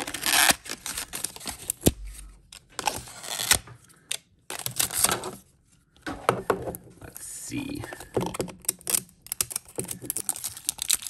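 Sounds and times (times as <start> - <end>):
paper tearing and rustling: 0.0 - 2.2.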